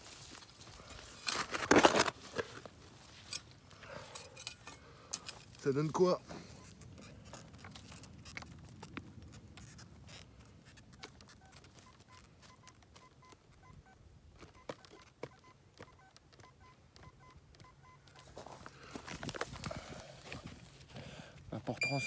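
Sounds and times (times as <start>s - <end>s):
soil clicks and scrapes: 0.0s - 13.6s
metal detector beeps: 6.4s - 6.9s, 10.9s - 18.4s, 21.8s - 22.0s.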